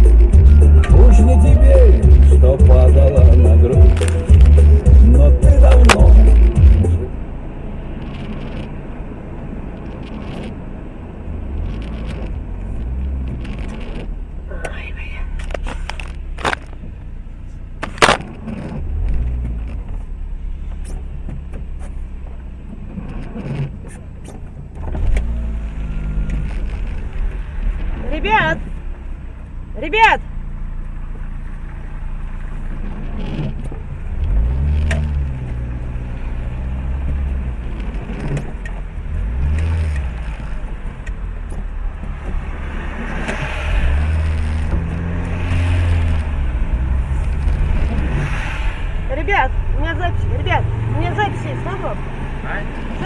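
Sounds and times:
car engine and tyres hum: 0.0s - 53.0s
sharp clicks: 3.3s - 7.1s, 8.0s - 8.8s, 9.7s - 10.6s, 11.6s - 16.8s.

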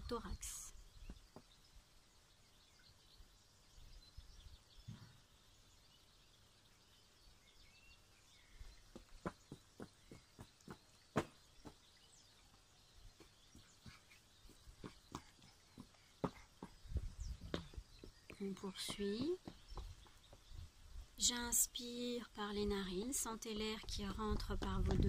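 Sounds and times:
soft bird chirps: 0.0s - 25.0s
wind rumble on microphone: 16.6s - 18.2s, 23.6s - 25.0s.

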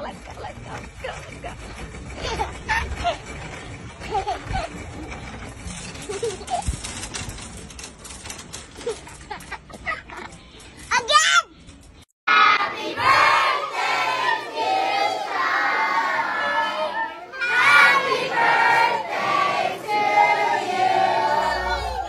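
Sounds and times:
children and adults singing and shouting: 12.3s - 22.0s.

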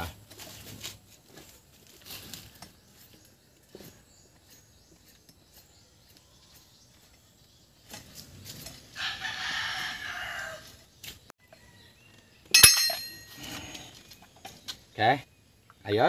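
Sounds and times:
rooster crowing: 9.0s - 10.8s
steel tool striking metal: 12.5s - 13.4s.

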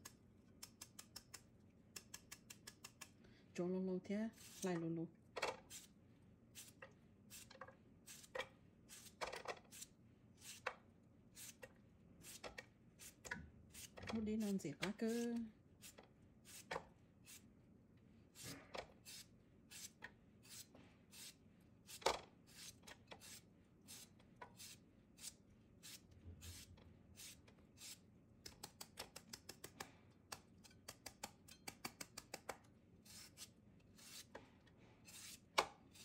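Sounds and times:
knife cutting cucumber strokes: 0.0s - 3.2s, 18.4s - 34.4s.

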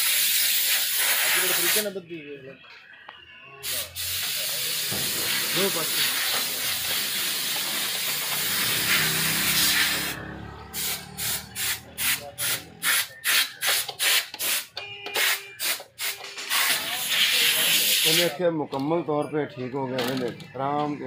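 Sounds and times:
steady hiss: 3.7s - 9.7s.

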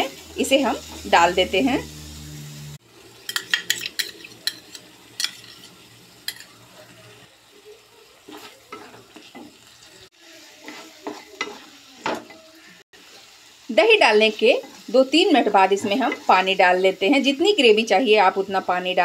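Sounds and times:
faint sizzle: 0.0s - 19.0s
wooden spatula scraping a pan: 8.2s - 13.3s, 14.5s - 16.5s.

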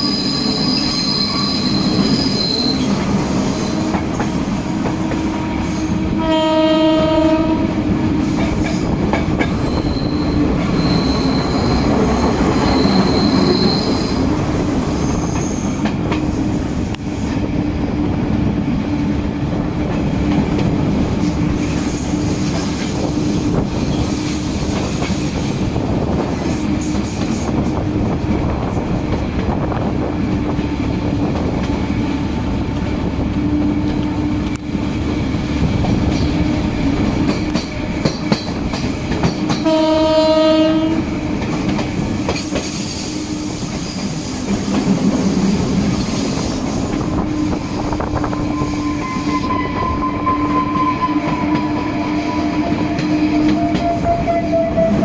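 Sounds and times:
electric train rumbling: 0.0s - 55.0s
train horn blast: 3.6s - 8.6s, 39.5s - 41.1s, 48.4s - 55.0s
wheels clacking on track: 8.2s - 17.1s, 19.5s - 39.8s, 41.2s - 49.6s.

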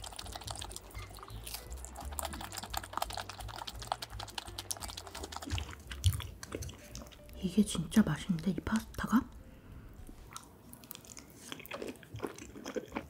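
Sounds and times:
chewing pizza crust: 0.0s - 7.4s, 10.2s - 13.0s.

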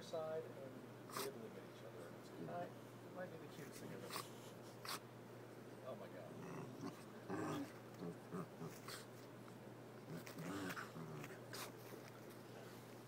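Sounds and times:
small dog growling: 6.2s - 9.3s, 10.0s - 12.3s
scuffling of fur and paws: 8.7s - 13.0s.

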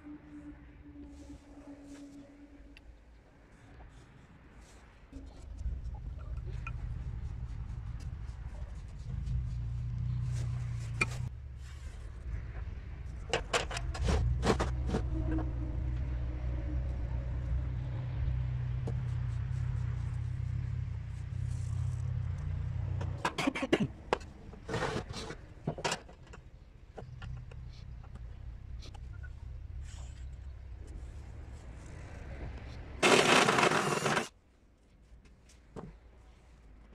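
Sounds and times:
ruler and marker on metal disc: 33.0s - 34.3s.

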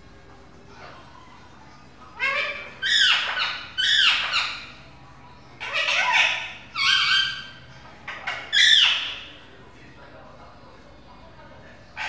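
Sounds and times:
parakeet squawking: 2.1s - 4.8s, 5.6s - 9.5s.

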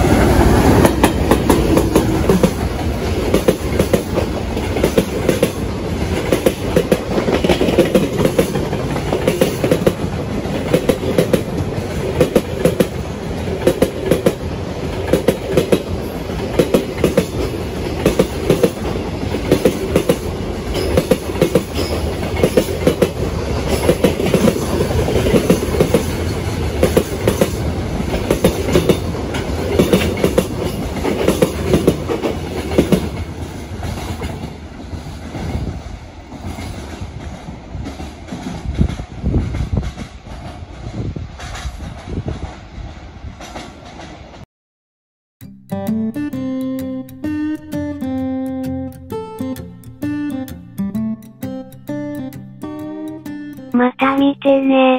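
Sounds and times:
train rumble: 0.0s - 44.4s.

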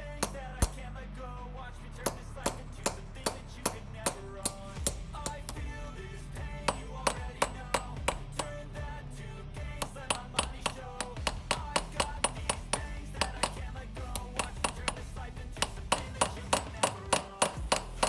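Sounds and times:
background music: 0.0s - 18.0s
hammer tapping on metal: 0.2s - 0.8s, 2.1s - 5.7s, 6.6s - 8.6s, 9.8s - 18.0s.

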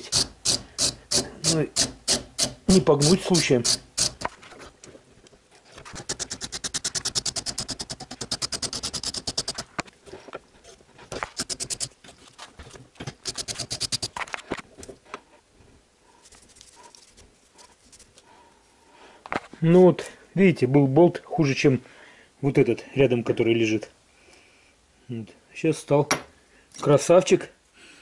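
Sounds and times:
wire brush scrubbing metal: 0.0s - 4.3s, 5.8s - 9.8s, 11.2s - 12.0s, 13.1s - 14.2s.

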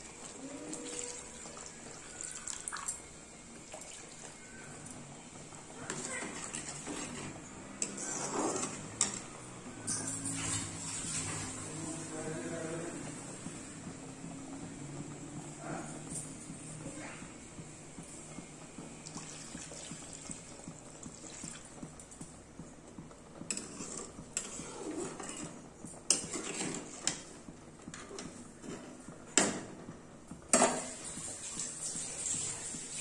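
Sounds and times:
spatula scraping iron pan: 6.8s - 9.1s, 23.5s - 25.5s.

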